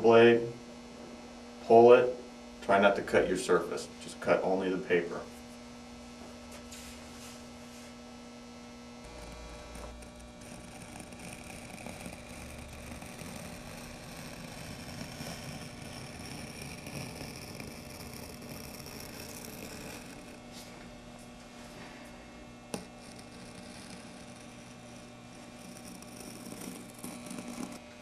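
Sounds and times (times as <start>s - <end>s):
low electrical hum: 0.0s - 28.0s
knife cutting through tape: 9.0s - 20.4s, 22.7s - 27.8s.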